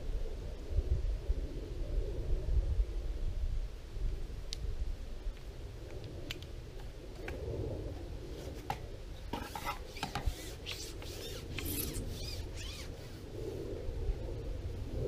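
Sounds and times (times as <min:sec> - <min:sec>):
fishing pole scraping and clicking: 0:08.4 - 0:13.1.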